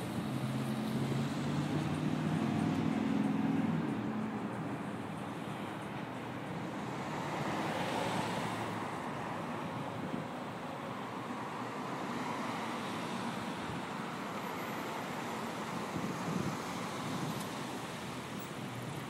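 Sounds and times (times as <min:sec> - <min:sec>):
distant road traffic: 0:00.0 - 0:19.0.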